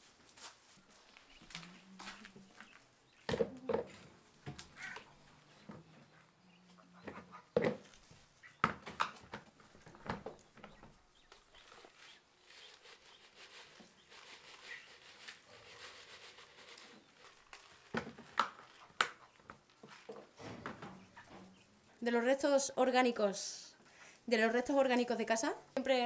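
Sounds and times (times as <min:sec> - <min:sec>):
plastic feeder knocking and clattering: 0:07.6 - 0:07.9.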